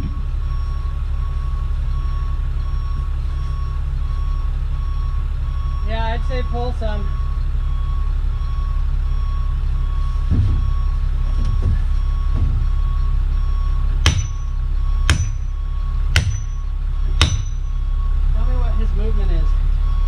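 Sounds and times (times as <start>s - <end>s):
low engine hum: 0.0s - 20.0s
axe strikes with metallic ring: 14.1s - 15.5s, 16.2s - 17.7s.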